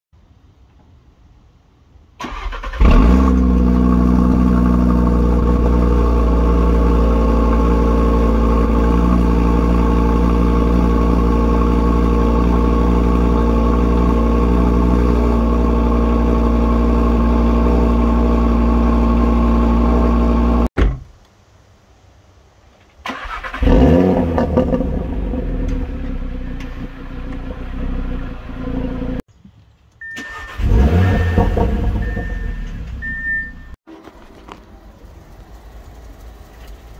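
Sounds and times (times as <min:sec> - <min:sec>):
car engine starting and idling: 0:02.2 - 0:20.7, 0:23.0 - 0:29.3, 0:29.9 - 0:36.9.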